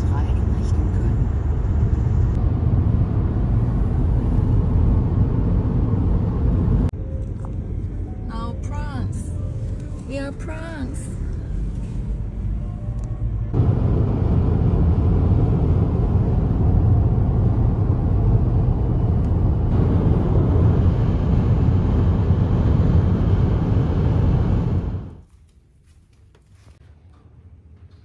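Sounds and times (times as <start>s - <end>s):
moving vehicle rumble: 0.0s - 25.2s.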